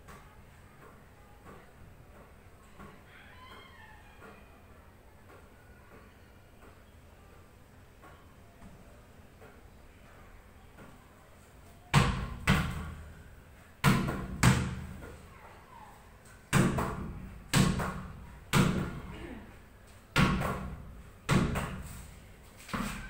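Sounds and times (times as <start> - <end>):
ball thudding against wall: 11.9 - 13.1, 13.8 - 15.2, 16.5 - 19.1, 20.1 - 23.0.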